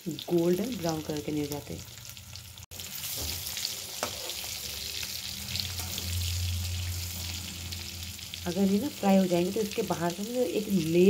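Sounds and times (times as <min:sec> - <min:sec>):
hot oil sizzling and crackling: 0:00.0 - 0:11.0
spatula turning potatoes: 0:00.2 - 0:11.0
low hum: 0:04.7 - 0:09.8.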